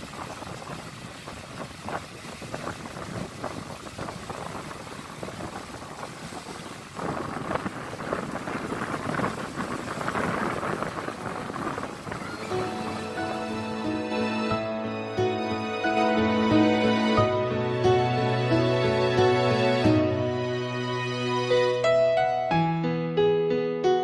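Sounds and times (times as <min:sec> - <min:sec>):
wind on microphone: 0:00.0 - 0:14.7
waves washing onto sand: 0:00.0 - 0:18.7.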